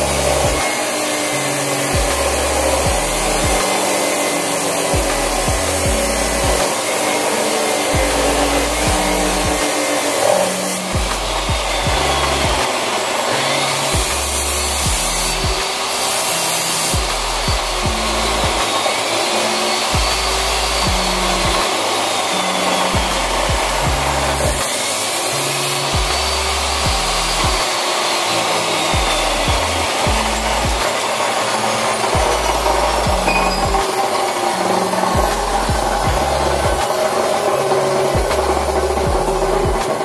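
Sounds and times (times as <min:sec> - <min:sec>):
background music with bass line: 0:00.0 - 0:00.7, 0:01.5 - 0:03.8, 0:04.7 - 0:06.8, 0:07.8 - 0:09.7, 0:10.8 - 0:12.7, 0:13.8 - 0:15.6, 0:16.9 - 0:18.7, 0:19.8 - 0:21.8, 0:22.6 - 0:24.7, 0:25.8 - 0:27.7, 0:28.8 - 0:31.0, 0:31.9 - 0:34.0, 0:34.6 - 0:40.0
chop saw grinding steel pipe: 0:00.0 - 0:40.0.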